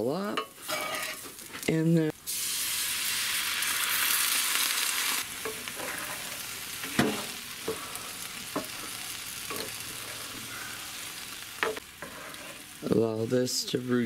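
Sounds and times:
spatula scraping a pan: 0:00.4 - 0:01.6, 0:05.4 - 0:10.7, 0:11.6 - 0:12.8
meat sizzling in a pan: 0:00.5 - 0:14.0.

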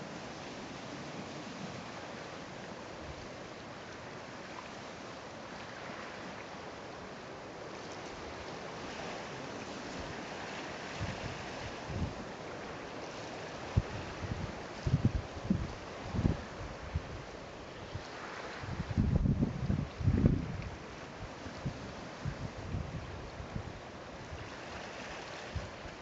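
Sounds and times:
choppy sea water on rocks: 0:00.0 - 0:26.0
wind: 0:00.0 - 0:26.0
wind buffeting microphone: 0:13.7 - 0:17.2, 0:18.5 - 0:20.8.

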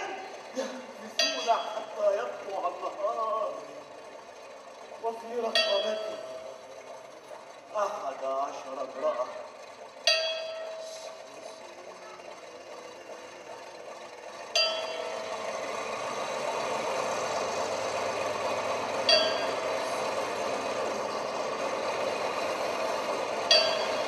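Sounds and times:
ringing metallic strikes: 0:05.5 - 0:06.6, 0:19.0 - 0:19.8, 0:23.5 - 0:24.0.

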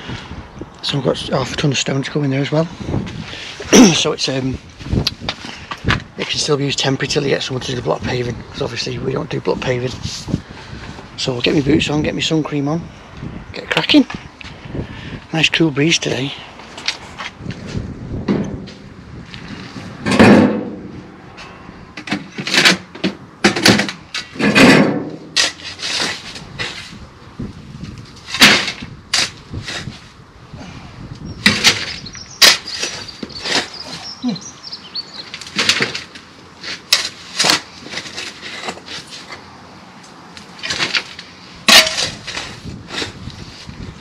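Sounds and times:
soil thudding into metal wheelbarrow: 0:23.5 - 0:26.9, 0:28.3 - 0:29.9, 0:31.4 - 0:34.0, 0:41.7 - 0:43.2
shovel digging into soil: 0:41.7 - 0:43.3.

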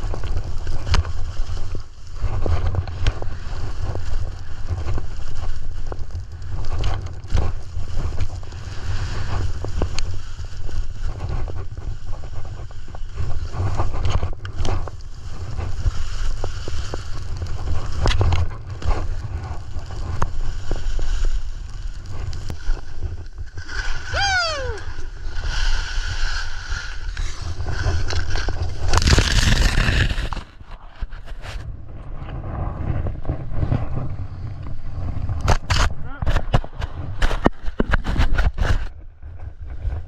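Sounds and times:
skis carving over packed snow: 0:00.0 - 0:40.0
wind buffeting microphone: 0:00.0 - 0:40.0
clicks of skis and poles: 0:13.2 - 0:21.4, 0:24.9 - 0:31.7, 0:33.3 - 0:39.0.

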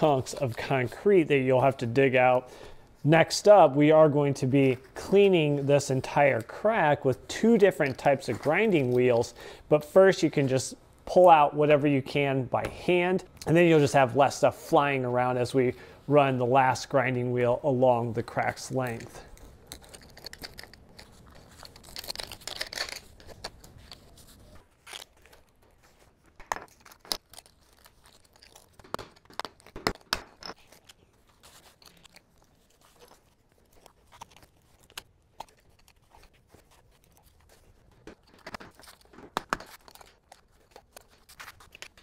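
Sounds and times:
tearing scrape of sealant: 0:19.0 - 0:26.1, 0:26.7 - 0:42.0.

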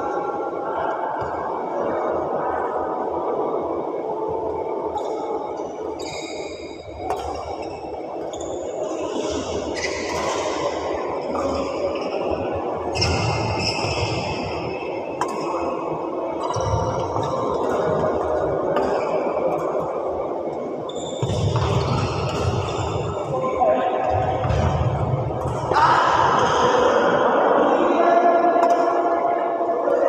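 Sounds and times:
shoes squeaking on court: 0:06.0 - 0:10.6
racket hitting shuttlecock: 0:07.0 - 0:07.5, 0:21.2 - 0:22.8.

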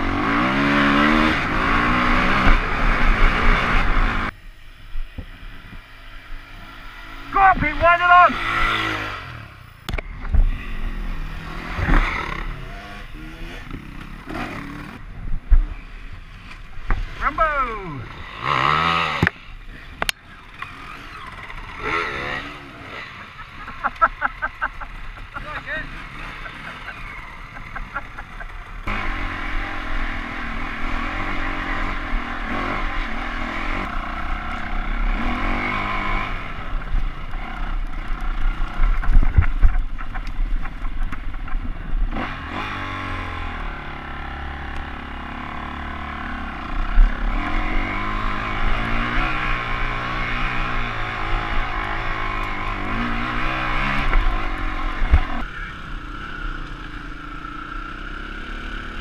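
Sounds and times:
motorcycle engine revving: 0:00.0 - 0:59.0
sharp knocks from rough ground: 0:38.8 - 0:41.8.

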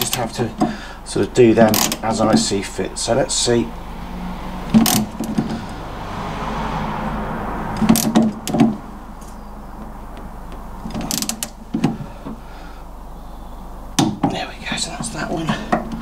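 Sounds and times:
metal clicks and knocks: 0:01.7 - 0:02.5.

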